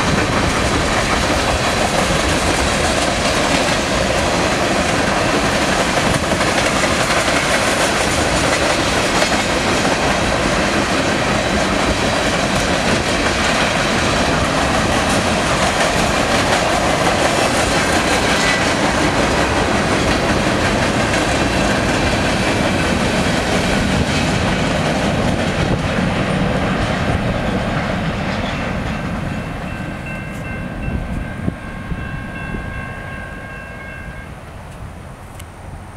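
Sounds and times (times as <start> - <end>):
freight train rolling past: 0.0 - 35.9
wind on microphone: 0.0 - 35.9.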